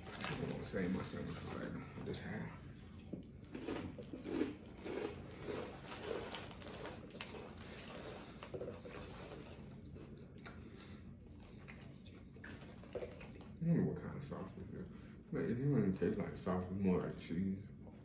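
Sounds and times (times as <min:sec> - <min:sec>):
person chewing food: 0:00.0 - 0:13.6.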